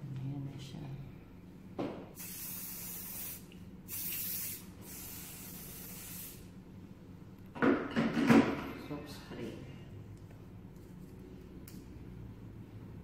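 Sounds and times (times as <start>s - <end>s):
hairspray can hissing: 2.2s - 6.5s.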